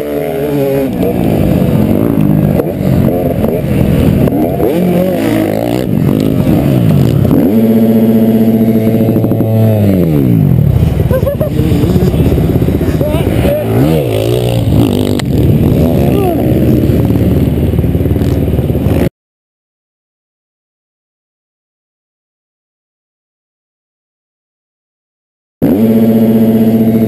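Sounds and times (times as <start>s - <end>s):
motocross bike engine revving: 0.0s - 19.1s, 25.6s - 27.0s.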